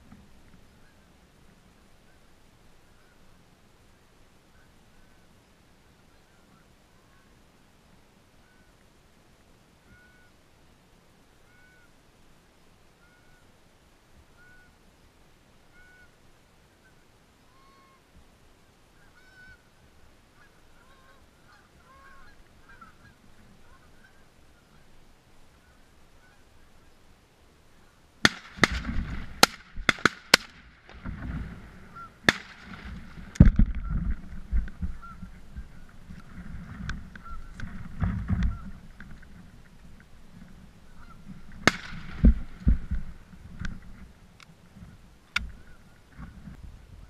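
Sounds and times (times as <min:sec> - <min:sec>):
geese honking: 0:09.9 - 0:10.4, 0:11.4 - 0:12.0, 0:13.0 - 0:13.5, 0:14.3 - 0:14.8, 0:15.7 - 0:16.2, 0:16.8 - 0:18.1, 0:19.0 - 0:27.0, 0:31.0 - 0:39.3, 0:40.8 - 0:43.8
loud sharp cracks: 0:28.2 - 0:31.6, 0:32.2 - 0:33.8, 0:41.6 - 0:43.0
low rumbling: 0:30.6 - 0:47.0.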